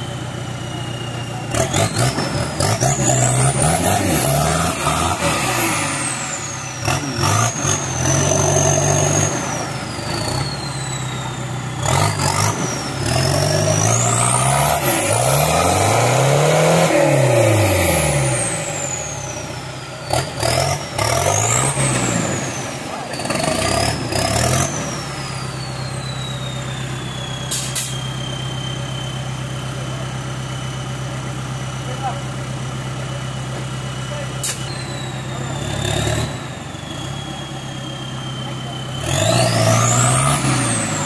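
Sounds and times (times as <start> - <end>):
engine revving hard: 1.5 - 10.6, 11.8 - 25.6, 35.2 - 36.6, 38.4 - 41.0.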